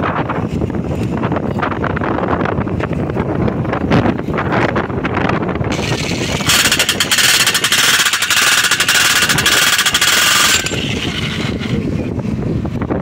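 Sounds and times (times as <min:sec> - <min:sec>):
demolition hammer hammering on metal: 0:06.5 - 0:11.1.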